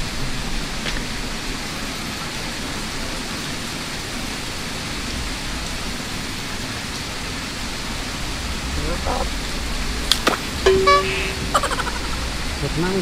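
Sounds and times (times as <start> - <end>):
steady rushing noise: 4.9 - 13.0.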